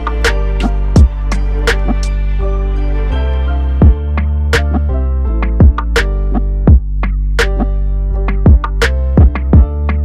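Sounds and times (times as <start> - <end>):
kick drum: 1.0 - 1.2, 3.8 - 4.0, 5.4 - 6.0, 6.7 - 7.2, 8.3 - 10.0.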